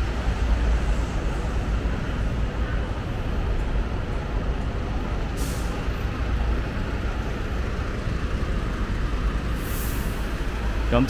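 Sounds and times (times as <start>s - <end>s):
diesel engines rumbling: 0.0s - 11.0s
air brakes hissing: 5.2s - 6.1s, 9.4s - 10.6s.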